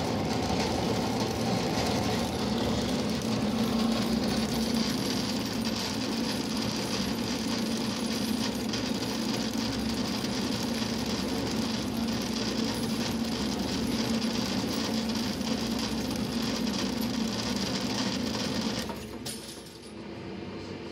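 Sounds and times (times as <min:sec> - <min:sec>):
cable stripping machine humming: 0:00.0 - 0:19.4.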